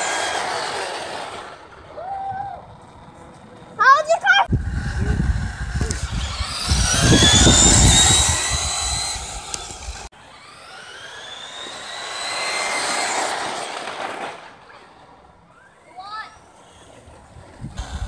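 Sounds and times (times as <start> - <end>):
rc car electric motors whining: 0.0 - 18.0
low rumble: 4.5 - 10.1.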